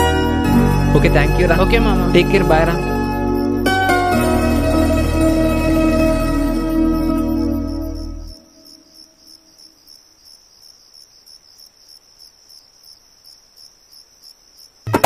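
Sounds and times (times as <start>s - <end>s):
background music: 0.0s - 8.4s
crickets chirping: 0.0s - 14.9s.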